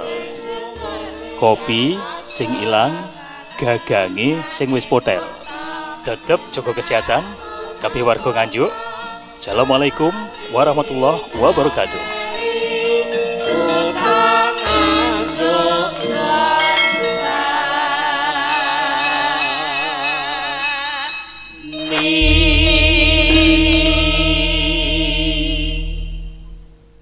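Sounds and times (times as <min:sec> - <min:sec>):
wavering melodic music: 0:00.0 - 0:27.0
deep bass: 0:22.2 - 0:27.0.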